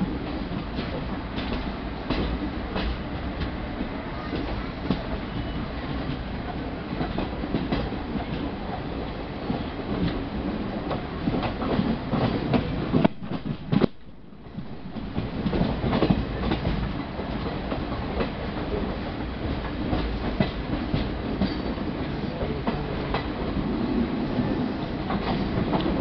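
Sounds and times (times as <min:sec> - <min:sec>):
train running rumble: 0:00.0 - 0:26.0.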